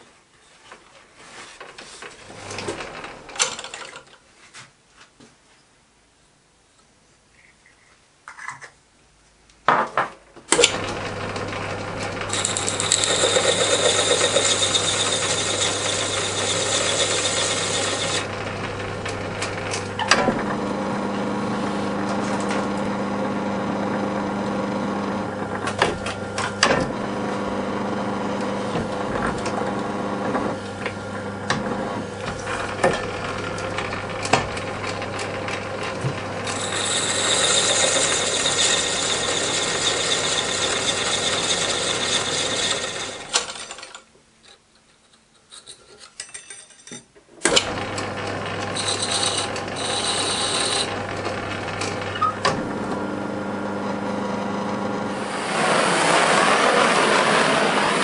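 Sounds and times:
metal lathe humming: 10.6 - 44.0, 47.5 - 58.0.

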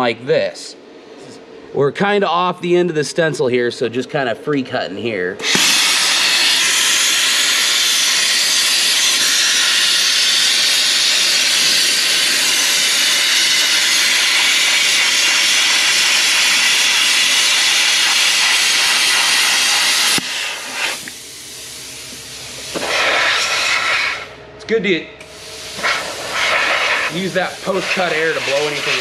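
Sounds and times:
plasma cutter hissing: 5.4 - 24.3, 25.3 - 29.0
soft hiss of torch air flow: 5.4 - 24.4, 25.2 - 29.0.

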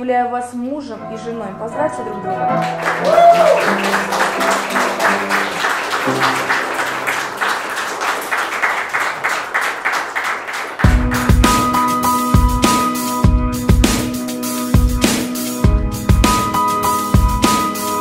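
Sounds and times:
background music: 0.0 - 7.8, 10.8 - 18.0
crowd applauding: 2.5 - 11.8
music with heavy bass beat: 10.9 - 18.0.

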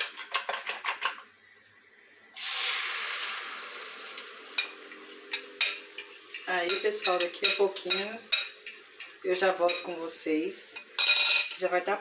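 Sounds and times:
egg sizzling in hot oil: 1.7 - 11.1.

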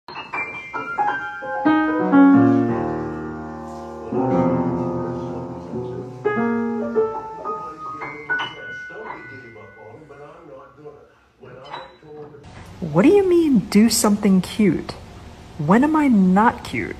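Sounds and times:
solo piano music: 0.1 - 10.1.

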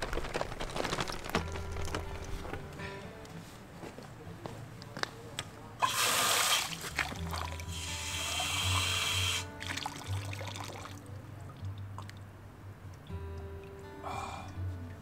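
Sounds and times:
background music: 0.0 - 15.0
water splashing into a bottle: 5.8 - 12.2.

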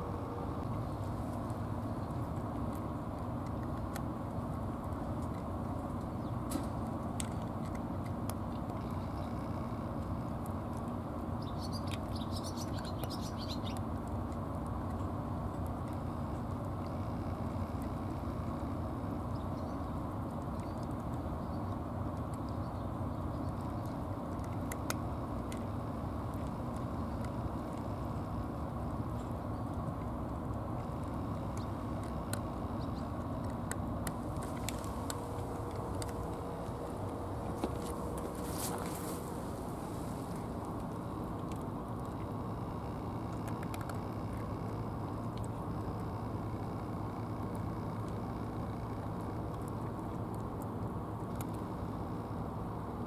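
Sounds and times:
low outdoor rumble: 0.0 - 53.0
cat chewing wet food: 0.2 - 52.0
cat chewing clicks: 19.2 - 29.0, 29.6 - 42.4, 43.2 - 46.1.

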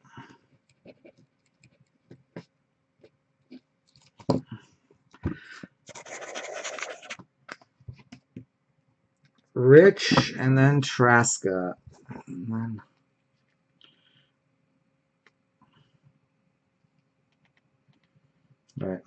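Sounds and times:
marker scribbling on paper: 5.9 - 7.2.

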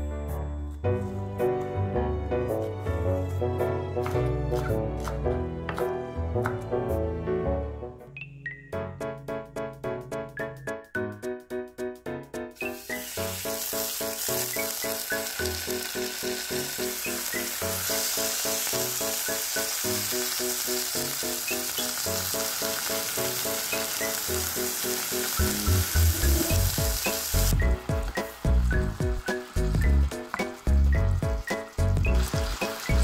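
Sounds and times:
light bouncy background music: 0.0 - 33.0
meat sizzling in frying pan: 12.6 - 33.0.

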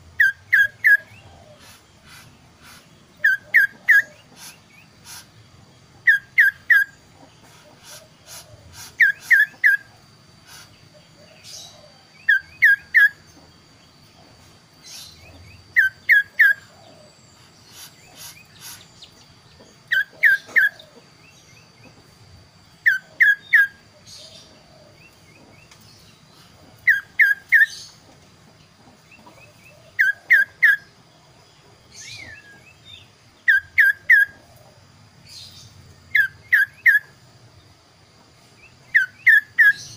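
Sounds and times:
soft bird calls: 0.0 - 22.2
songbird whistling: 0.2 - 1.2, 3.2 - 4.2, 6.1 - 7.0, 9.0 - 9.9, 12.2 - 13.2, 15.7 - 16.7, 26.8 - 27.8, 33.4 - 34.4, 36.2 - 37.2, 38.9 - 39.9.

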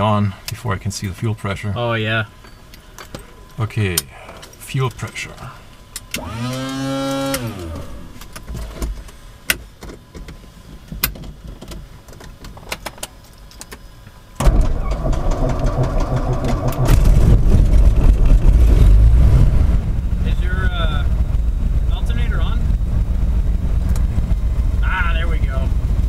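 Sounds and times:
electric whine: 6.1 - 8.4, 14.4 - 26.0
aircraft engine starting and idling: 14.4 - 26.0.

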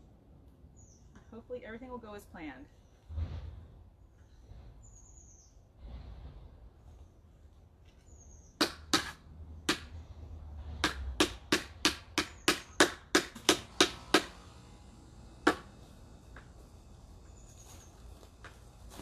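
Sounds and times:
rubber mallet pounding stake: 8.6 - 9.9, 10.8 - 14.3, 15.4 - 15.7.

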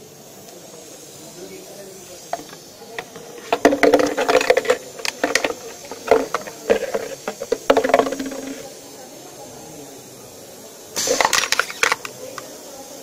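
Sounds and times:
plastic bottle crinkling and clattering: 2.4 - 8.6, 11.0 - 12.1.

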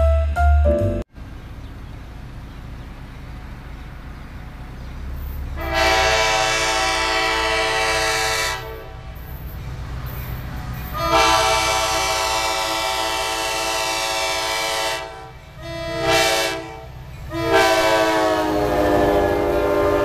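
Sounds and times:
diesel locomotive rumble: 0.0 - 20.0
locomotive air horn blast: 5.6 - 9.3, 10.9 - 20.0.

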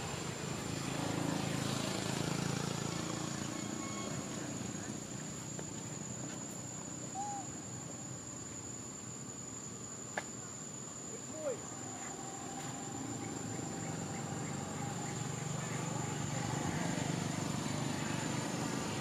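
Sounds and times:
high-pitched insect drone: 10.6 - 19.0
animal calls: 11.2 - 16.9.

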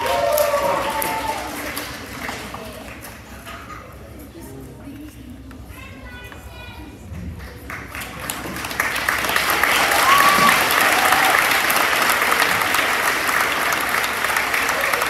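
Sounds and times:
audience clapping: 0.0 - 3.3, 7.4 - 15.0.

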